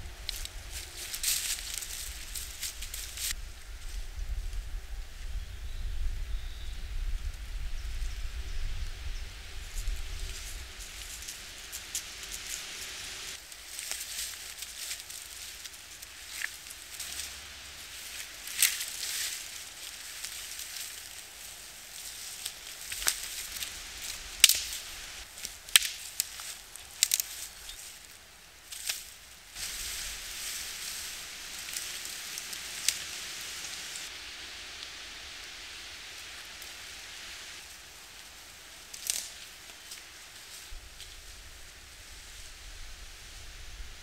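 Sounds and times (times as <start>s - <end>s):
branches swishing over leaves: 0.0s - 4.6s, 9.1s - 44.0s
twigs snapping: 0.2s - 3.4s, 9.8s - 17.4s, 18.0s - 34.1s, 38.8s - 41.2s.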